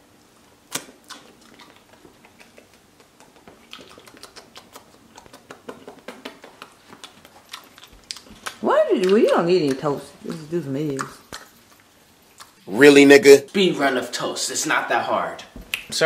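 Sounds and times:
eating clicks and taps: 0:01.6 - 0:11.5.

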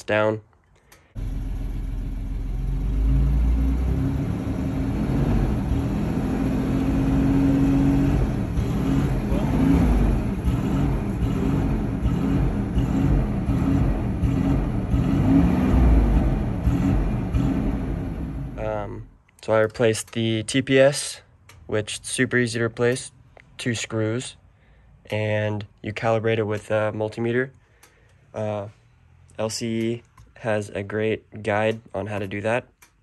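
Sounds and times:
car engine revs surging: 0:01.2 - 0:18.6.

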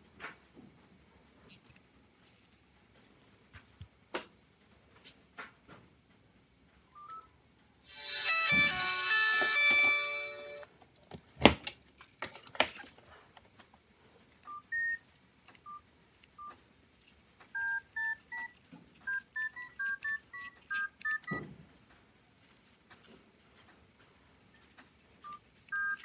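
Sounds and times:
phone keypad beeps: 0:14.5 - 0:15.0, 0:15.6 - 0:15.8, 0:17.6 - 0:21.4, 0:25.2 - 0:26.0.

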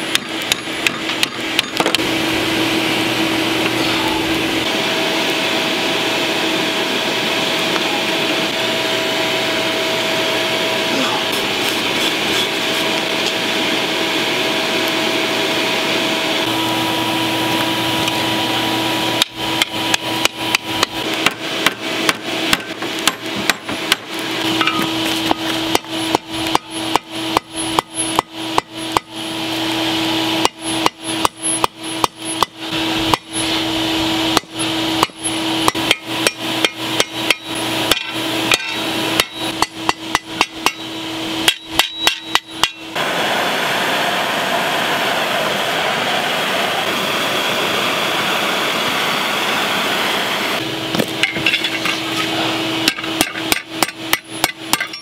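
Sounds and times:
hammer striking steel on anvil: 0:00.0 - 0:02.0, 0:19.2 - 0:29.2, 0:30.4 - 0:33.5, 0:34.3 - 0:43.0, 0:51.0 - 0:55.0
forge air blower hum: 0:00.0 - 0:55.0.

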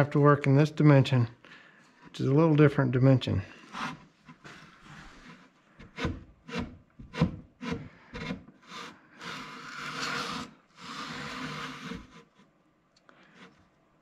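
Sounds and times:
wood scraping on wood: 0:03.5 - 0:12.5.

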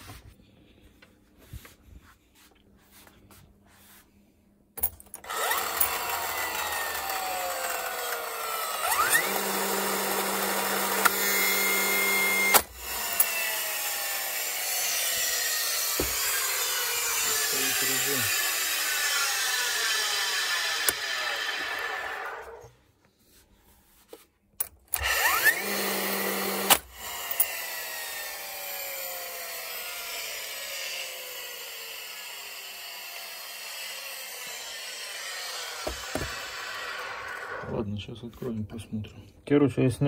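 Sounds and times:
nailer motor whirring: 0:04.8 - 0:22.7, 0:24.9 - 0:37.8
nail firing crack: 0:12.0 - 0:13.4.

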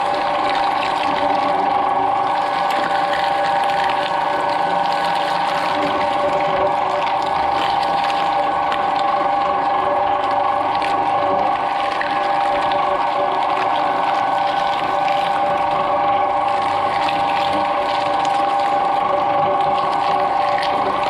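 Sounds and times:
shredder crunching fruit: 0:00.0 - 0:21.0
shredder drive whine: 0:00.0 - 0:21.0.

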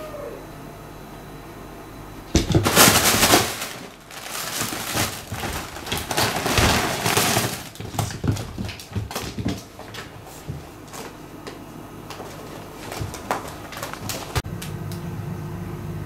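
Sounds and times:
crinkly rustling of fabric tunnel: 0:02.6 - 0:11.2, 0:12.2 - 0:14.4.

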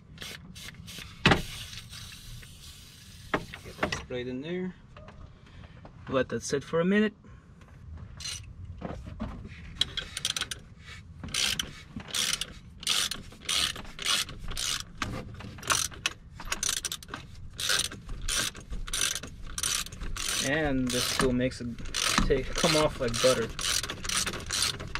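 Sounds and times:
ratchet wrench clicking: 0:08.2 - 0:08.4, 0:09.8 - 0:10.6, 0:11.3 - 0:15.0, 0:15.6 - 0:24.9.

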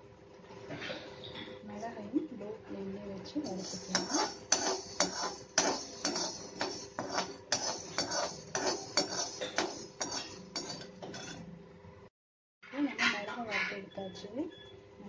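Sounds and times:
metal spatula scraping a pan: 0:03.4 - 0:11.4, 0:12.6 - 0:14.0.

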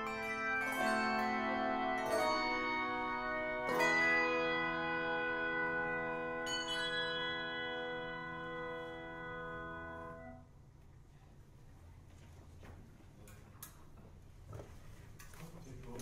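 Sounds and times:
handbell choir ringing chord: 0:00.0 - 0:10.2.

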